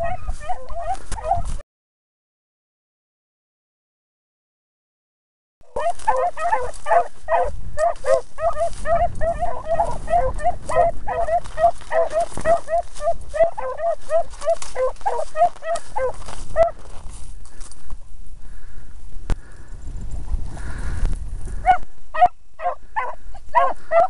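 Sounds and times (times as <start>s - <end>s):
dogs barking rapidly: 0.0s - 1.6s, 5.7s - 16.9s, 21.5s - 24.0s.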